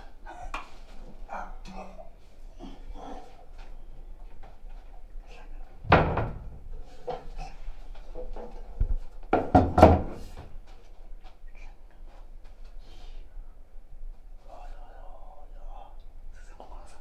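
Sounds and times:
cupboard doors banging: 0:05.8 - 0:06.6, 0:09.3 - 0:10.4
dull thump: 0:05.9 - 0:06.5.

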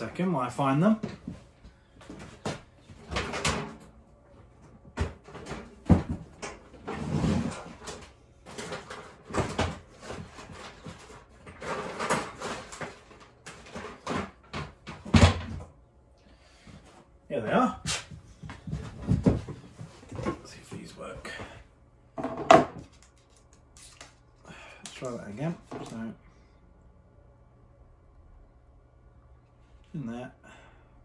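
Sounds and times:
clatter of things being moved: 0:01.0 - 0:15.7, 0:18.3 - 0:21.5
drawers opening and closing: 0:03.0 - 0:03.9, 0:05.0 - 0:15.7.

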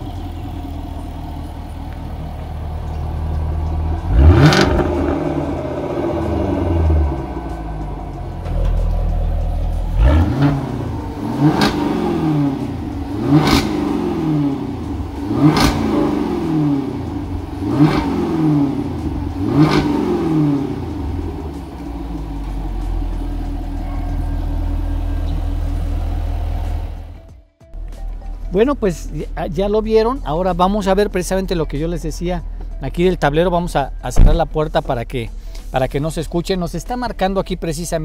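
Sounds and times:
sports car engine revving: 0:00.0 - 0:27.3
car engine idling: 0:00.0 - 0:38.0.

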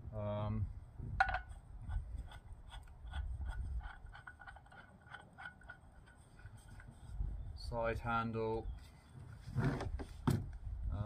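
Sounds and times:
small clicking and scraping of tool parts: 0:01.2 - 0:07.2.

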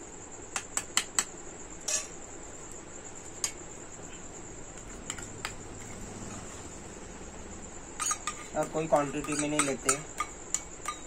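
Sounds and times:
crickets trilling: 0:00.0 - 0:11.0
spoon scraping steel bowl: 0:08.0 - 0:11.0.

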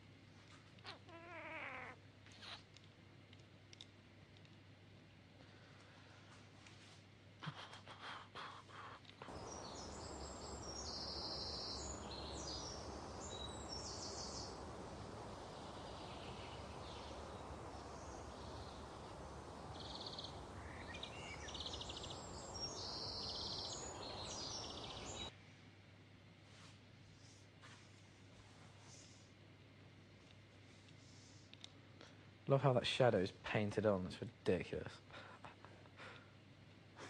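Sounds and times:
steady outdoor noise: 0:02.0 - 0:37.0
birds calling faintly: 0:07.4 - 0:25.4.

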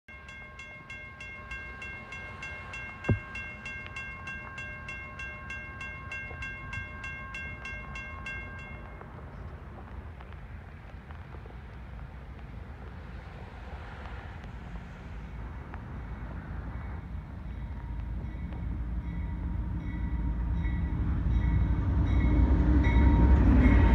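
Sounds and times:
mechanical crossing bell ringing: 0:00.1 - 0:09.0
sharp thump: 0:03.1 - 0:03.4.

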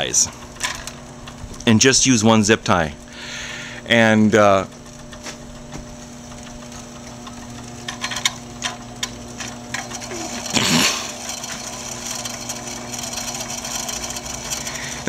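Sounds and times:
treadmill motor humming: 0:00.0 - 0:15.0.

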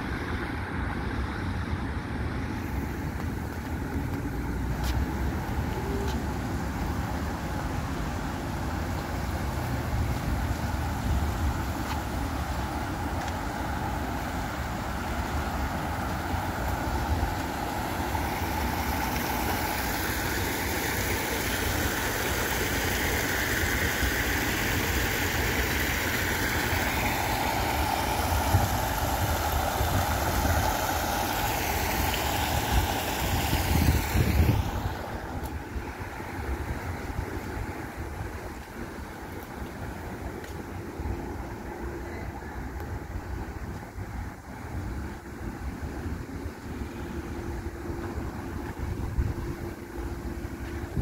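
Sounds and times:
waterfall fountain rushing: 0:00.0 - 0:51.0
wind rumble on microphone: 0:32.4 - 0:51.0.

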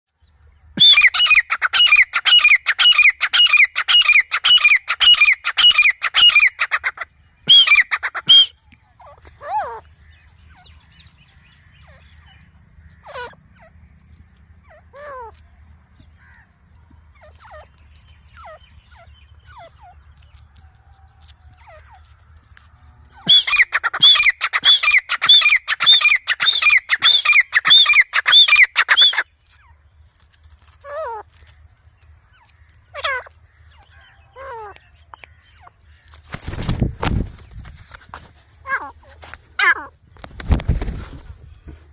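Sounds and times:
francolin calling ringing notes: 0:23.2 - 0:29.2.

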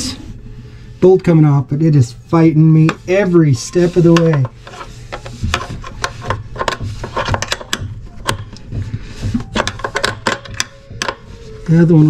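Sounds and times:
paper towels rustling: 0:03.0 - 0:09.8.

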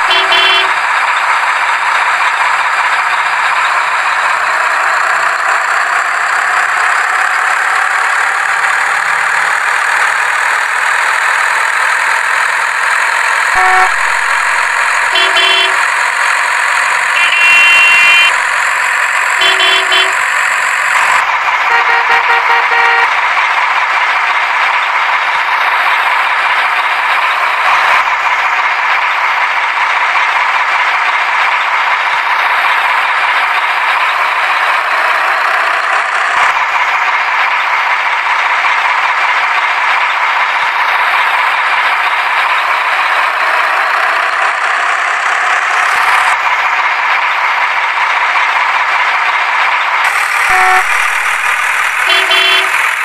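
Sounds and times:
truck engine drone: 0:00.0 - 0:53.0
short tones: 0:13.4 - 0:15.9, 0:17.1 - 0:23.1, 0:50.1 - 0:53.0.

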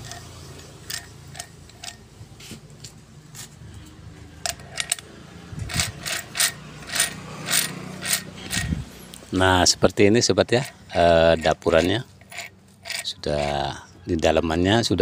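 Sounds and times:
metal gears clinking: 0:00.0 - 0:02.1, 0:04.4 - 0:08.8, 0:10.4 - 0:13.8.

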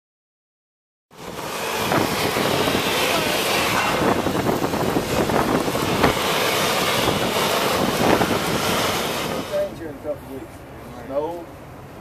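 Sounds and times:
wind buffeting microphone: 0:01.2 - 0:10.1
vehicle rumble: 0:01.2 - 0:12.0.

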